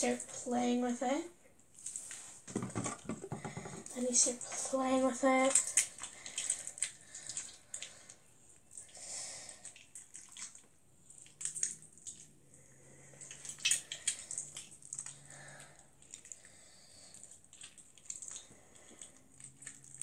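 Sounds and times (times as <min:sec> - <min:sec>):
slime squishing: 0:01.7 - 0:20.0.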